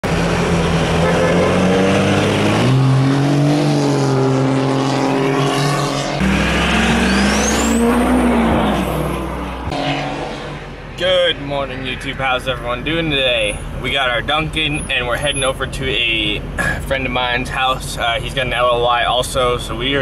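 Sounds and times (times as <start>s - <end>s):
engine revving: 0.0s - 12.2s
high whistle climbing: 6.3s - 8.9s.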